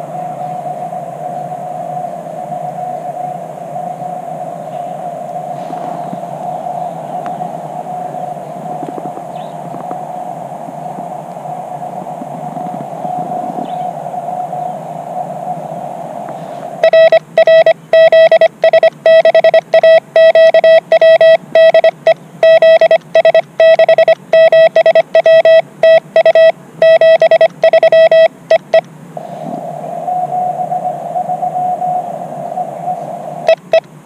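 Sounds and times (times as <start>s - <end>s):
radio receiver hiss: 0.0s - 34.0s
morse code beeps: 16.8s - 28.8s, 33.4s - 33.8s.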